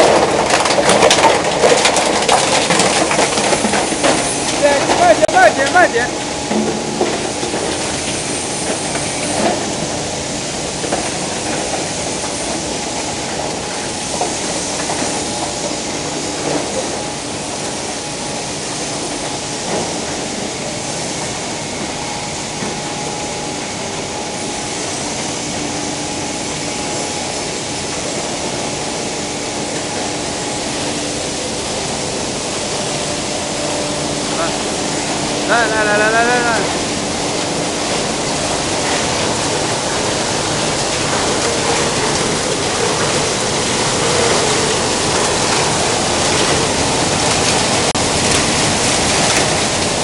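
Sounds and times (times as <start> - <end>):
recycling machinery running: 0.0 - 50.0.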